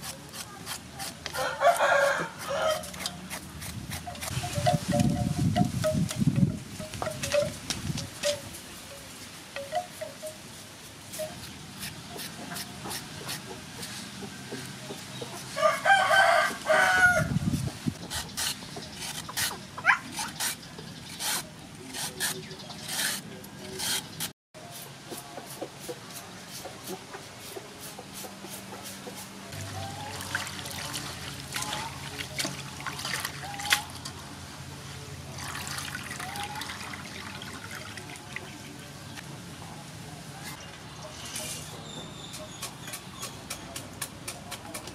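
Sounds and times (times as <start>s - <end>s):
rooster crowing: 1.4s - 2.9s, 15.5s - 17.3s
water trickling and splashing: 29.6s - 34.2s, 35.3s - 39.0s.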